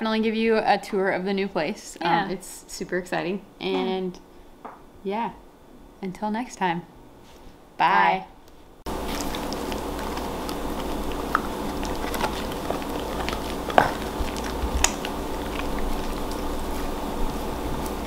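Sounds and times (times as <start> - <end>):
background hum: 0.0 - 18.0
puppy gnawing on a chew: 8.9 - 18.0
teeth crunching and clicking: 9.0 - 16.5.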